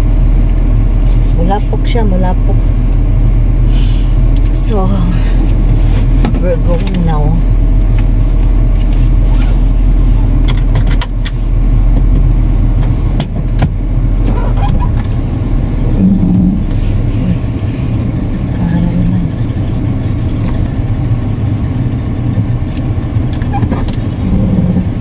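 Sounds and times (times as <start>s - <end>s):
car engine rumbling: 0.0s - 25.0s
seatbelt buckle clicks: 10.4s - 11.4s.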